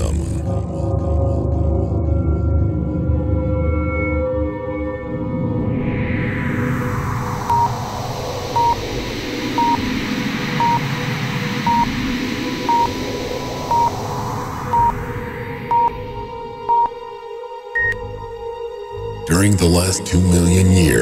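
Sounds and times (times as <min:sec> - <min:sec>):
steady tone: 0:06.3 - 0:17.1
short high countdown beeps: 0:14.7 - 0:15.0.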